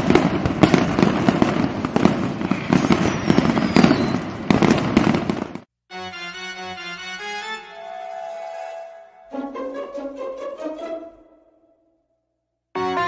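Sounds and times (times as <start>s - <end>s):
falling firework whistle: 0.0s - 5.6s, 7.7s - 9.2s
fireworks bursting and crackling: 0.0s - 5.7s
keyboard melody: 5.9s - 12.0s, 12.8s - 13.0s.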